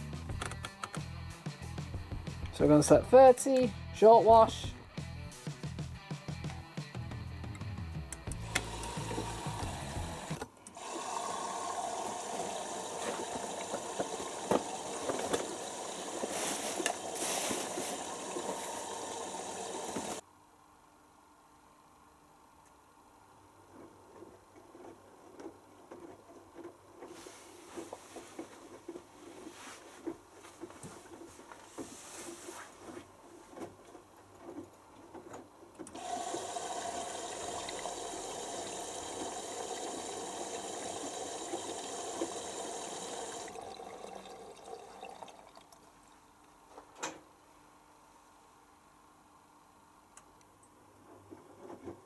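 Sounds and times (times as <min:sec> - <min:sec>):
water rushing through valve: 0:08.4 - 0:20.2, 0:35.9 - 0:45.7.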